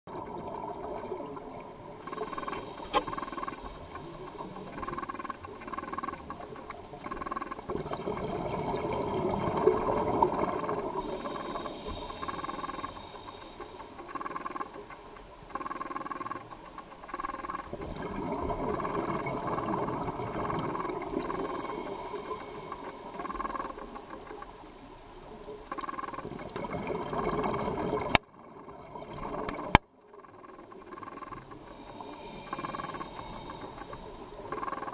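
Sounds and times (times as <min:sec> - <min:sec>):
diver's exhaled bubbles hissing: 0:00.1 - 0:05.4, 0:07.7 - 0:13.9, 0:17.8 - 0:24.0, 0:31.6 - 0:34.8
underwater fish crackle and clicks: 0:00.1 - 0:34.9.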